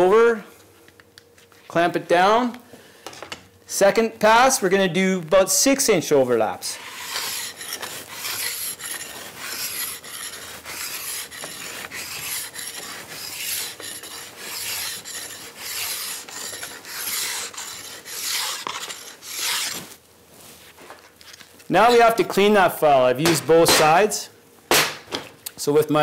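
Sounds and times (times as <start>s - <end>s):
file rasping along steel edge: 6.7s - 19.8s.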